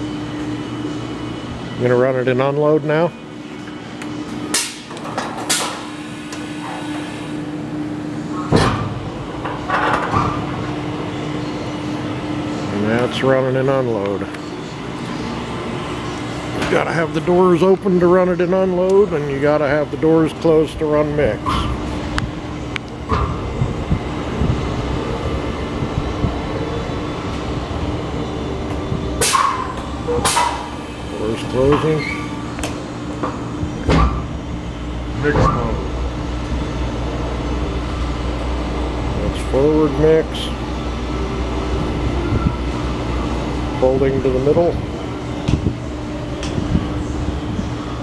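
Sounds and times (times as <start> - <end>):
mixer humming: 10.4 - 48.0.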